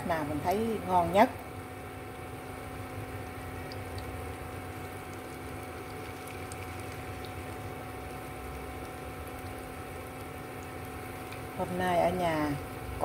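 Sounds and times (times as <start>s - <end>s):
faint hob hum: 0.0s - 13.0s
food deep-frying in hot oil: 0.0s - 13.0s.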